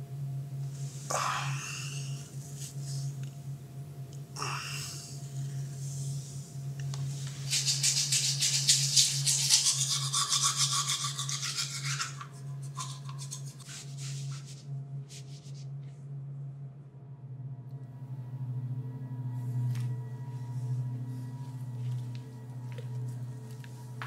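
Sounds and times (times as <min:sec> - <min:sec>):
low hum: 0:00.0 - 0:24.0
toothbrush scrubbing teeth: 0:07.5 - 0:14.5.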